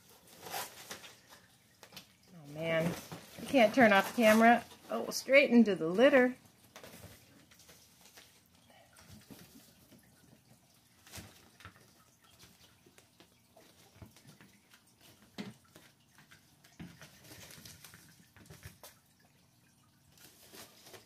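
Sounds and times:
kittens crinkling fabric tunnel: 2.5s - 5.2s.

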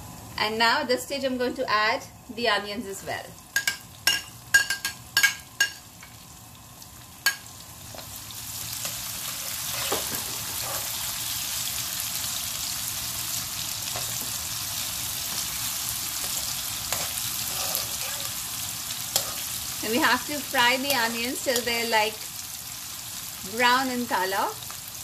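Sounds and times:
onions sizzling in hot oil: 0.0s - 25.0s
metal spoon clinking on pan: 3.6s - 5.9s.

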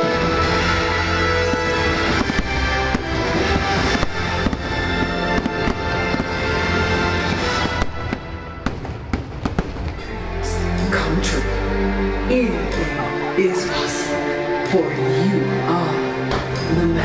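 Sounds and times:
loud soundtrack music: 0.0s - 17.0s
fireworks bursting: 0.3s - 10.1s.

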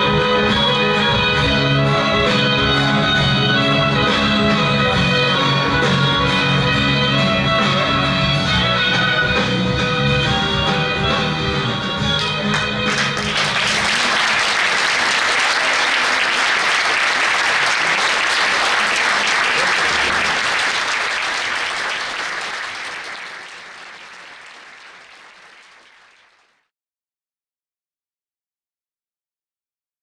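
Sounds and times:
roomful of people applauding: 0.0s - 6.8s, 12.1s - 26.7s
tango song: 0.0s - 13.8s.

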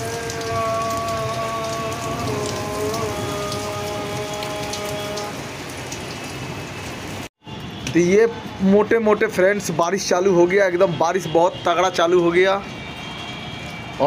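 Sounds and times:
sharp raindrop hits: 0.0s - 8.1s
heavy rain pouring: 0.0s - 14.0s.

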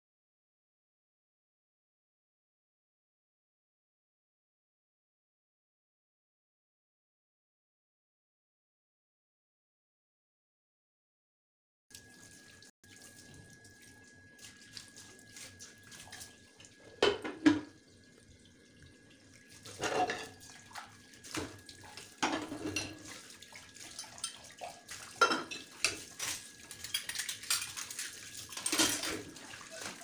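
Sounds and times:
plates clinking together: 17.0s - 17.7s, 19.8s - 20.4s, 22.2s - 23.1s, 25.2s - 26.1s
tap running into sink: 17.0s - 17.8s.

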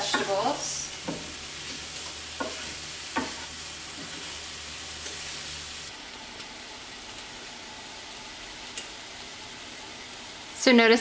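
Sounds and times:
vegetables sizzling in frying pan: 0.0s - 11.0s
wooden spoon knocking on pan: 1.0s - 1.4s, 2.4s - 3.4s.

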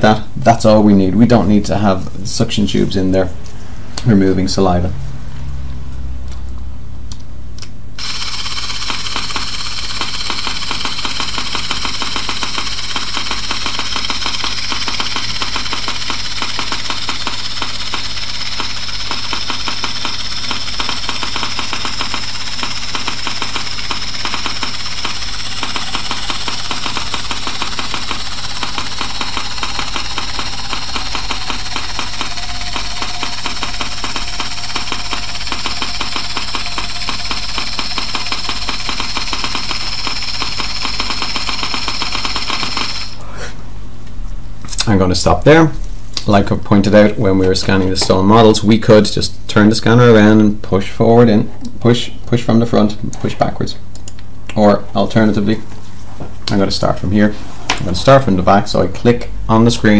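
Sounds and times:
low steady hum: 0.0s - 8.0s
scanner handpiece buzzing: 7.6s - 43.3s.

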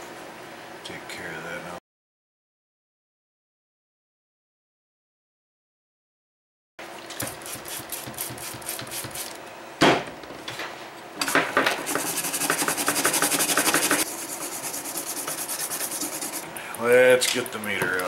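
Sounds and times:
toothbrush scrubbing circuit board: 7.3s - 9.4s, 11.8s - 18.0s.

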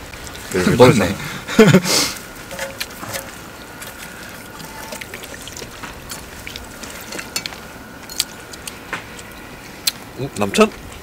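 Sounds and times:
liquid trickling from bottle: 2.5s - 7.4s.

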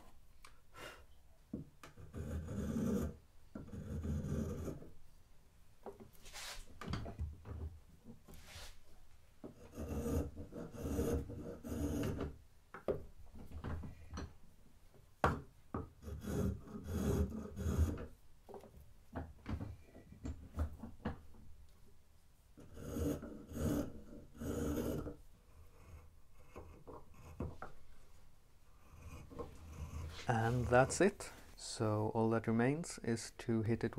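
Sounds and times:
spokeshave scraping wood: 8.3s - 8.8s, 28.9s - 31.6s.

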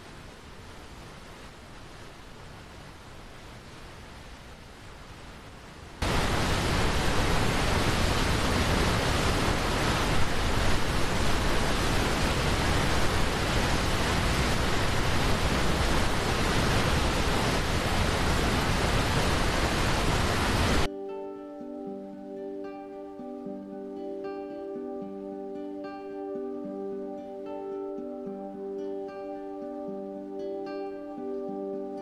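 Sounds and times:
faint river hiss: 0.0s - 32.0s
waterfall rushing: 6.0s - 20.9s.

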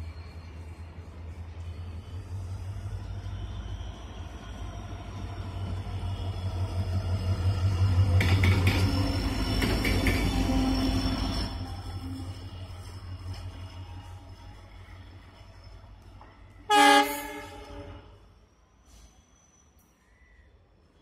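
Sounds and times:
diesel locomotive engine rumbling: 0.0s - 19.5s
wheels clacking on rails: 5.0s - 14.7s.

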